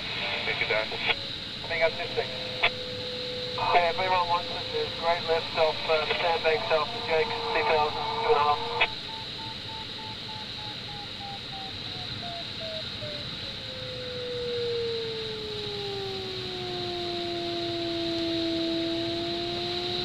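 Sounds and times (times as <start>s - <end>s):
steady hiss: 0.0s - 20.0s
variometer beeps and tone: 1.8s - 13.6s.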